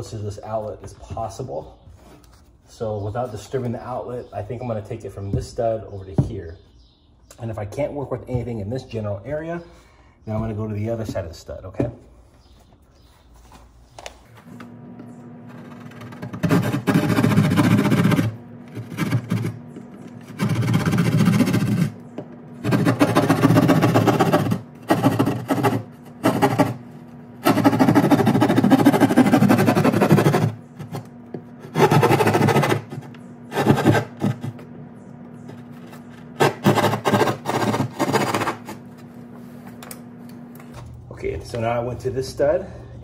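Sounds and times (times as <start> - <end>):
saw cutting through drywall: 15.5 - 22.0, 22.6 - 34.6, 36.0 - 38.8.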